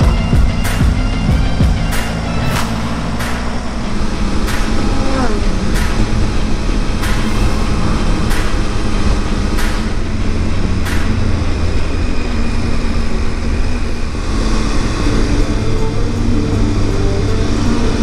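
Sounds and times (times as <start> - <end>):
motorcycle engine and road rumble: 0.0 - 18.0
sharp tick: 1.8 - 5.0, 5.7 - 12.0.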